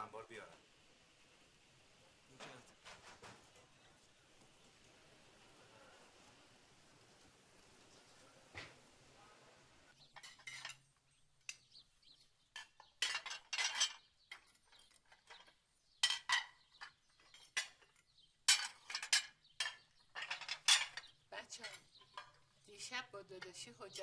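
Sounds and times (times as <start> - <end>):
china plates clinking: 10.1 - 10.8, 12.6 - 22.4.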